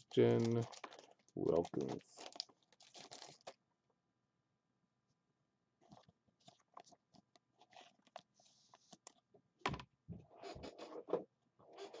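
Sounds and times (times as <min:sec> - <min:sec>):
plastic sleeve crinkling: 0:00.0 - 0:03.6.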